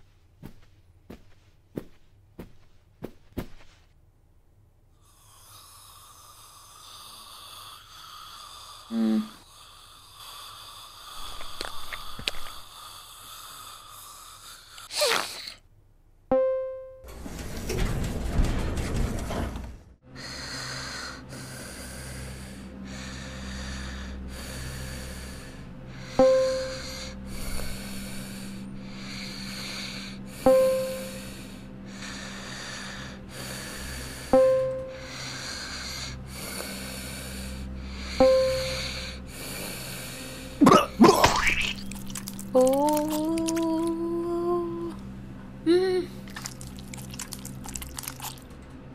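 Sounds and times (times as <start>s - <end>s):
slow heavy breathing: 5.0s - 15.0s, 20.1s - 40.6s
cartoon sneeze-like vocal burst: 14.9s - 15.6s
bell-like note: 16.3s - 17.1s
elevator chime dinging: 16.3s - 18.0s, 26.2s - 26.9s, 30.5s - 31.2s, 34.3s - 35.0s, 38.2s - 39.0s
dense rumbling noise: 17.1s - 20.0s.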